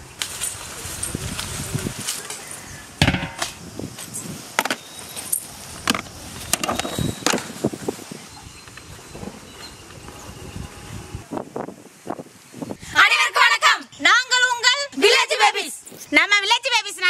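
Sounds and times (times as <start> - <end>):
steel trays and plates clanking: 3.0 - 3.6.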